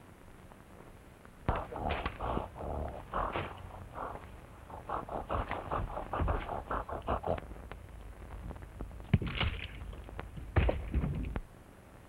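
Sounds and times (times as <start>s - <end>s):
gorilla grunting huffs: 1.5s - 7.4s.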